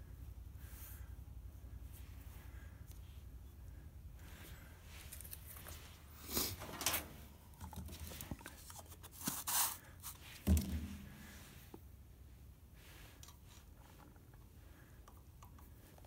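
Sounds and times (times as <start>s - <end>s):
hands rustling and handling: 4.2s - 12.0s.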